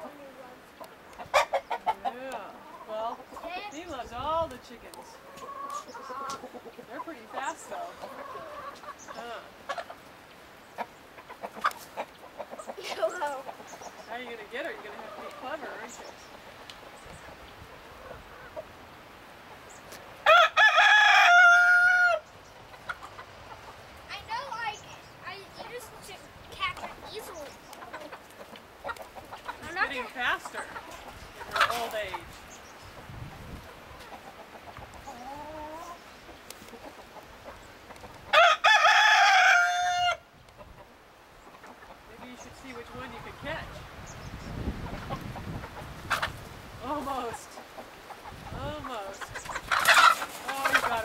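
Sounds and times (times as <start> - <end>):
rooster crowing: 20.2 - 22.2, 38.3 - 40.2.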